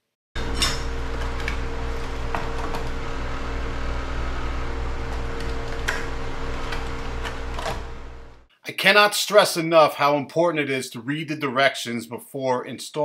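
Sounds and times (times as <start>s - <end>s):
machine hum: 0.4s - 8.5s.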